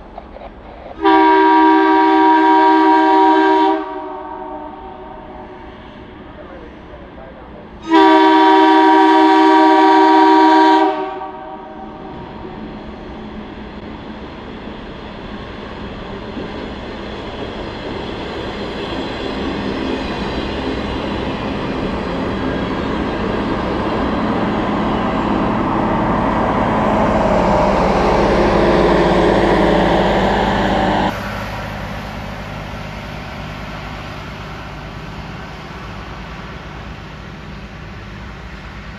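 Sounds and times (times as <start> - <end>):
train approaching rumble: 0.0 - 38.9
train engine tones: 0.0 - 38.9
train air horn chord: 1.0 - 5.4, 7.8 - 11.8.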